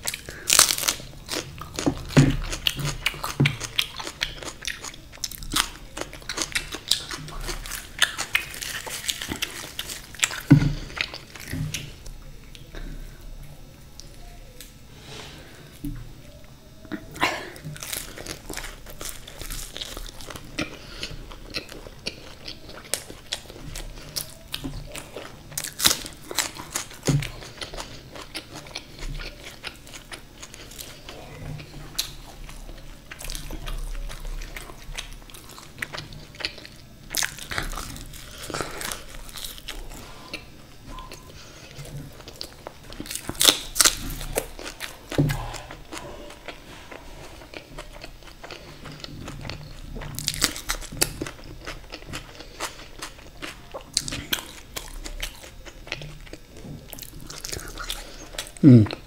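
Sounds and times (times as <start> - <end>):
wet chewing: 0.0 - 12.8, 16.5 - 59.0
crisp crunches: 5.5 - 11.8.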